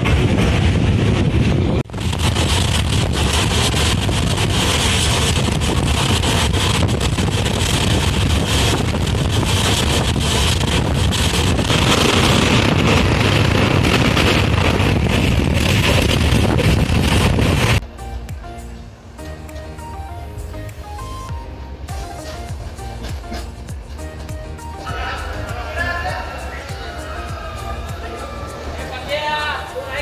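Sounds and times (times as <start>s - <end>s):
wind buffeting microphone: 0.0s - 17.8s
train wheels rumbling on rails: 0.0s - 30.0s.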